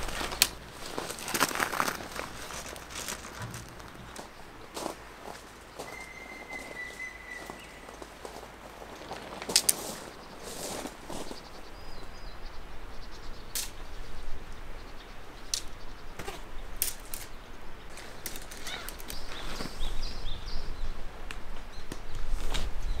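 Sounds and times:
tent fabric rustling and flapping: 0:00.0 - 0:05.6, 0:22.3 - 0:23.0
footsteps on gravel: 0:00.0 - 0:11.4
birds chirping faintly: 0:00.0 - 0:23.0.

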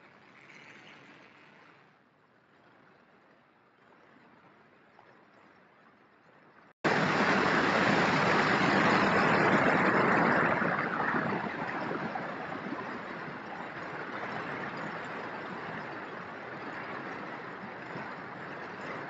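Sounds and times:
model plane propeller noise: 0:00.0 - 0:02.1
rushing airflow: 0:06.8 - 0:13.7.

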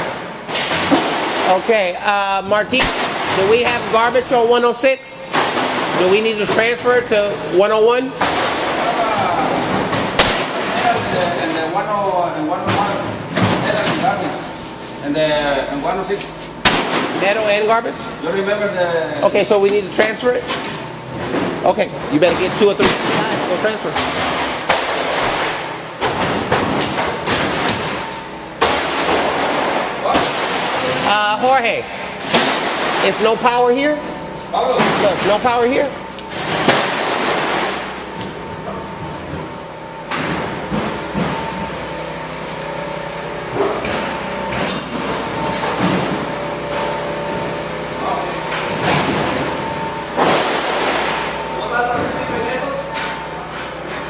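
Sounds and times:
electrical hum: 0:00.0 - 0:54.0
heavy demolition bangs and thuds: 0:21.2 - 0:31.6, 0:36.3 - 0:39.6, 0:48.4 - 0:54.0
demolition knocks and bangs: 0:22.3 - 0:31.2.

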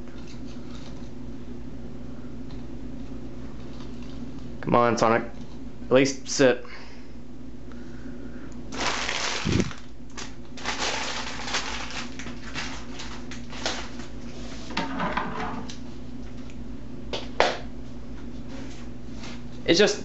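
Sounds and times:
steady low hum: 0:00.0 - 0:20.0
plastic wrap crinkling: 0:08.7 - 0:14.2.

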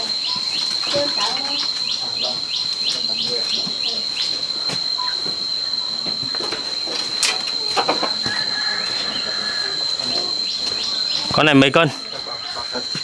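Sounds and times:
high-pitched insect drone: 0:00.0 - 0:13.0
scattered clicks and knocks: 0:06.0 - 0:08.4.

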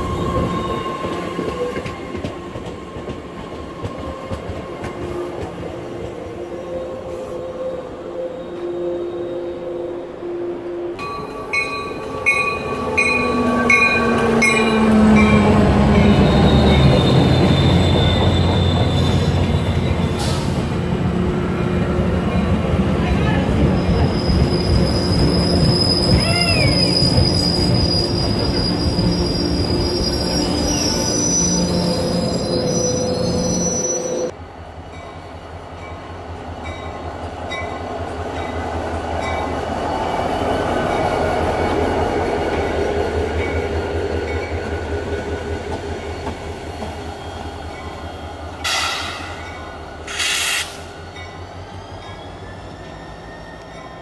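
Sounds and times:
train rolling past: 0:00.0 - 0:54.0
diesel locomotive engine rumble: 0:11.0 - 0:54.0
train wheels squealing: 0:11.2 - 0:20.7, 0:23.6 - 0:34.3, 0:43.5 - 0:54.0.

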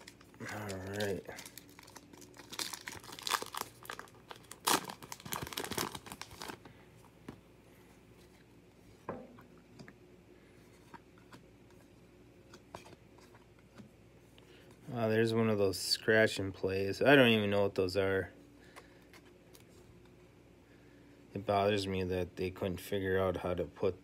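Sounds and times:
card pack wrapper tearing and crinkling: 0:00.0 - 0:06.7.

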